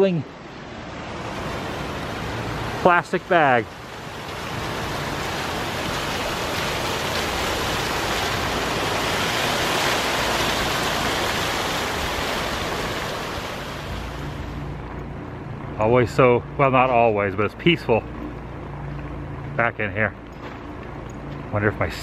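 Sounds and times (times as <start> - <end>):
fountain water splashing: 0.8 - 14.7.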